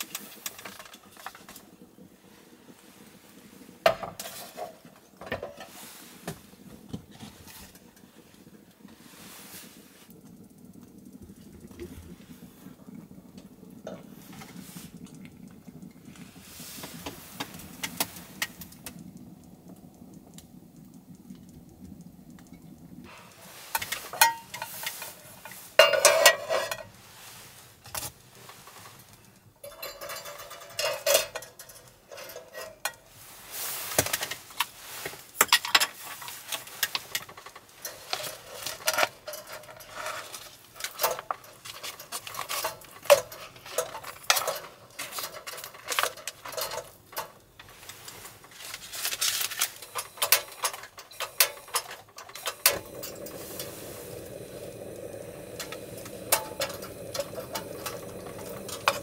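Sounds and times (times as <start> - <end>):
metal cookware clinking and scraping: 3.9 - 5.8, 23.1 - 27.0, 28.4 - 33.1, 35.4 - 54.7, 55.5 - 59.0
low steady hum: 36.1 - 59.0.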